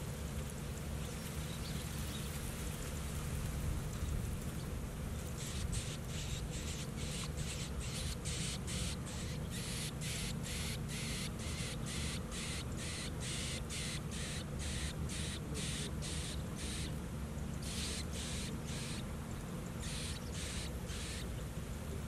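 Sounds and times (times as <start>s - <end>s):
chicks begging with raspy calls: 4.0s - 21.6s.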